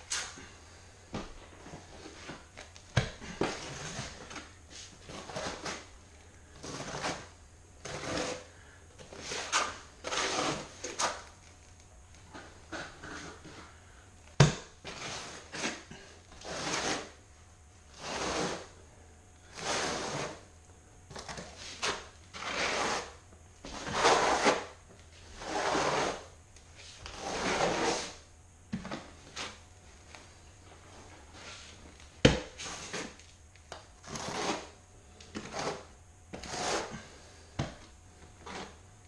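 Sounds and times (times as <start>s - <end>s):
trowel scraping mortar: 5.1s - 5.9s, 6.6s - 8.5s, 9.1s - 11.2s, 14.8s - 17.2s, 17.9s - 18.7s, 19.5s - 20.4s, 21.8s - 24.7s, 25.3s - 26.3s, 27.1s - 28.2s, 34.0s - 34.8s, 35.4s - 37.1s.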